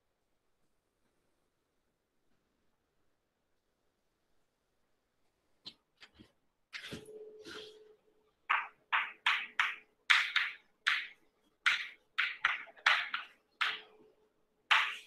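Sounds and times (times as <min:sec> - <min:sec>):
faint steady hum: 0:00.0 - 0:15.0
chalk writing on blackboard: 0:14.7 - 0:15.0.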